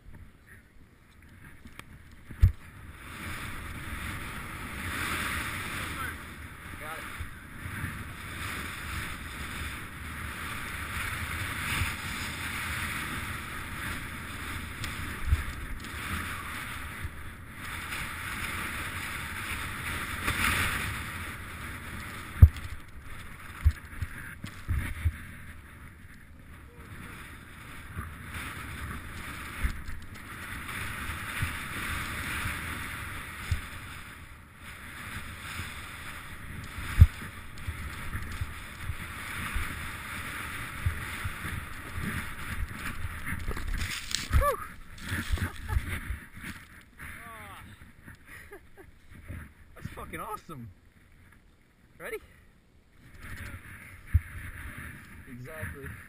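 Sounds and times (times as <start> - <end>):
snowboard hissing through powder: 34.8 - 46.2
low thumps from snow bumps: 35.2 - 46.6.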